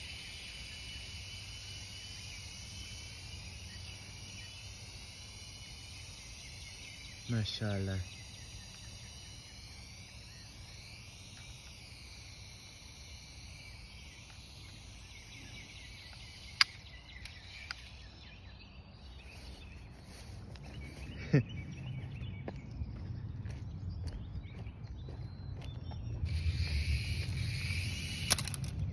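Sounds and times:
faint high wavering hiss: 0.0s - 20.9s
sharp click: 16.1s - 17.9s, 27.2s - 28.8s.

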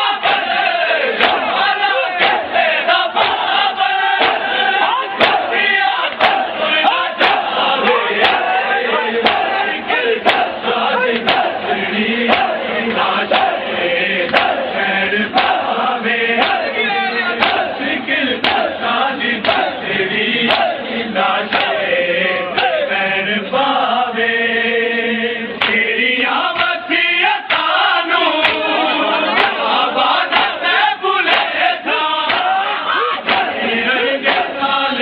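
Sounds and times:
men chanting a lament: 0.0s - 35.0s
chest-beating slaps: 1.2s - 1.6s, 2.2s - 2.5s, 3.2s - 3.6s, 4.2s - 5.5s, 8.2s - 8.6s, 9.2s - 9.6s, 10.2s - 11.6s, 12.3s - 13.6s, 14.2s - 14.6s, 15.3s - 15.7s, 16.4s - 16.7s, 17.4s - 17.8s, 18.4s - 18.7s, 19.4s - 19.8s, 21.5s - 21.8s, 25.6s - 25.8s, 32.3s - 32.5s, 33.1s - 33.6s, 34.2s - 34.6s.

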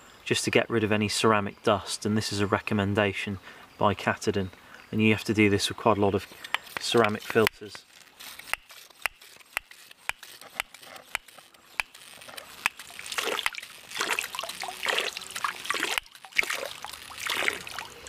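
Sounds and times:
water spurting from hose: 6.2s - 18.0s.

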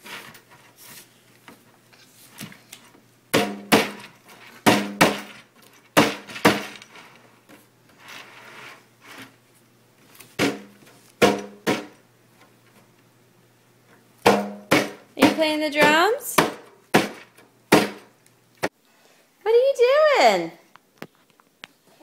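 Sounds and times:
baby slapping hand drum: 4.6s - 5.3s, 14.2s - 18.1s.

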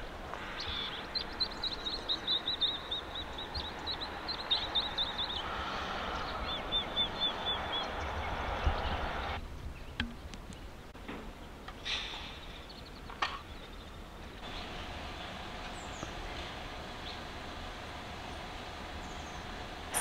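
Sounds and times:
swallows twittering: 0.4s - 10.0s, 12.4s - 17.3s, 19.0s - 20.0s.

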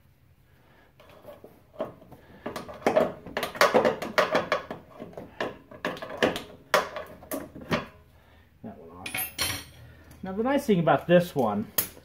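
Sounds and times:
tools clicking and clanking on metal: 9.0s - 9.9s.

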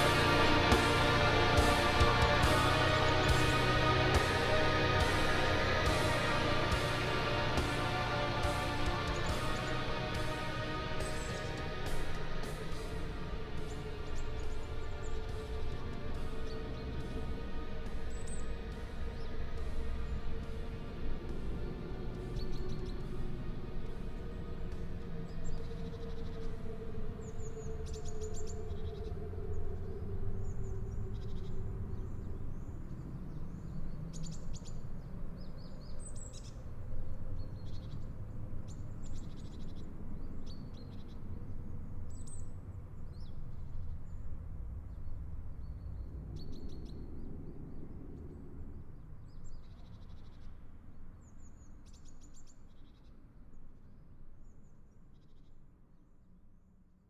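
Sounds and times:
low steady rumble: 0.0s - 52.3s
songbirds chirping: 0.0s - 56.3s.

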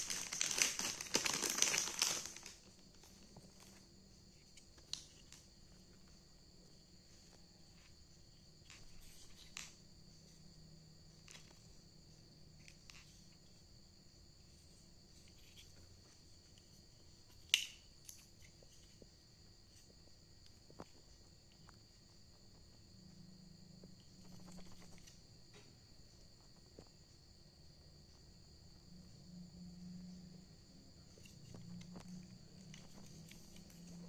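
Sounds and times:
plastic adapter clicks and rustles: 0.0s - 2.7s, 4.5s - 5.5s, 17.4s - 18.9s
faint high-pitched whine: 0.0s - 34.0s.

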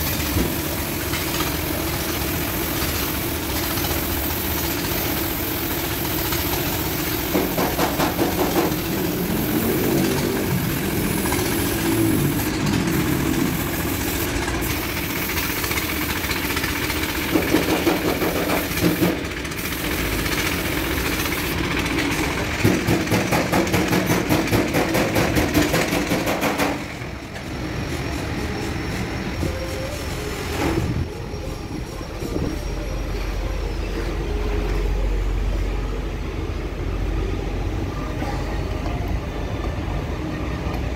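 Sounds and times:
paint spray gun hissing: 0.0s - 26.9s
engine-like machine drone: 0.0s - 40.9s.

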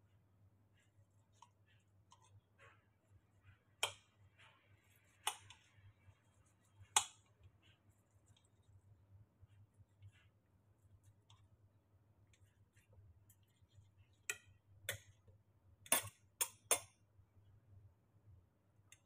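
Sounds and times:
cutlery ticks and scrapes: 15.9s - 16.9s.

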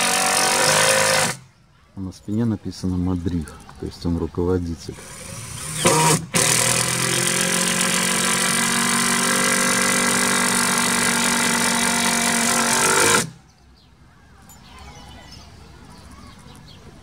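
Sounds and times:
cordless drill driving screw: 0.0s - 1.4s, 4.9s - 13.3s.

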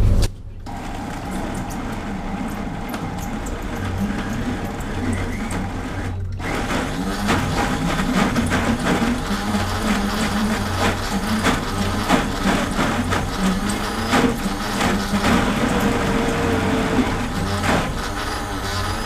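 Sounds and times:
blender running under load: 0.7s - 19.0s
tamper knocking in blender: 6.4s - 18.2s.

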